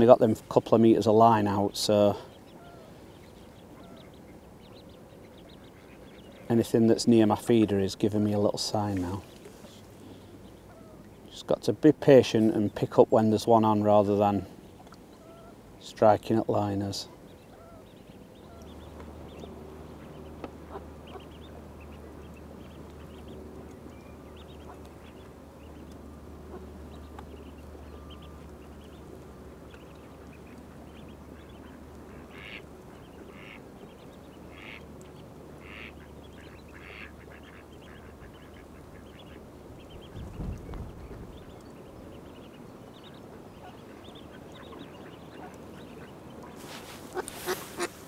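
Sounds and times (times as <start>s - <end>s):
steady low hum: 0.0s - 48.0s
ducks quacking: 19.9s - 22.2s, 30.3s - 33.6s, 34.4s - 34.9s, 35.6s - 40.2s, 43.6s - 48.0s.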